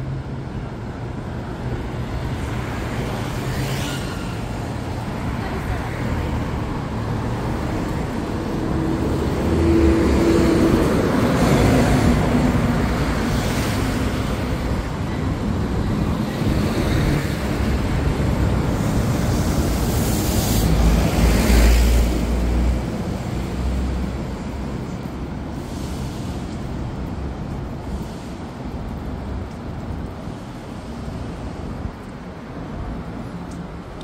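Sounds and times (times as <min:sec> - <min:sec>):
street traffic: 0:00.0 - 0:34.0
loud vehicle passing: 0:06.2 - 0:14.5.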